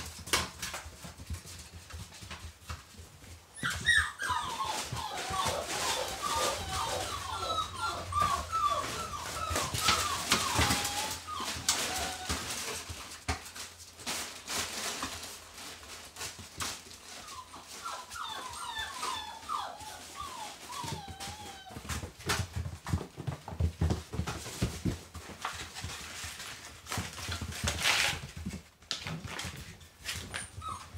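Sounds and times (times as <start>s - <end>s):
puppies whining and whimpering: 3.2s - 13.1s, 17.0s - 23.4s, 29.4s - 30.9s.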